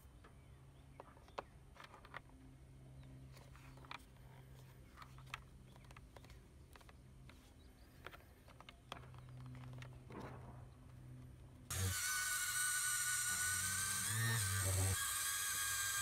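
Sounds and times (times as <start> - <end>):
small clicks and taps: 4.9 - 10.3.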